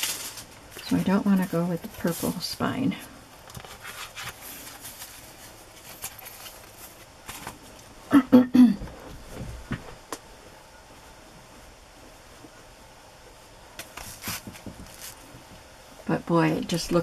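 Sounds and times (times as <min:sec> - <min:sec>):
paper and book cover rustling: 0:00.0 - 0:07.8, 0:13.8 - 0:15.4.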